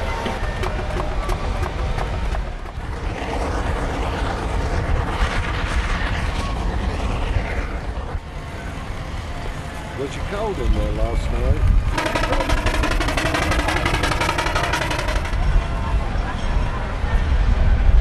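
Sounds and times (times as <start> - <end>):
steam engines rumbling and hissing: 0.0 - 18.0.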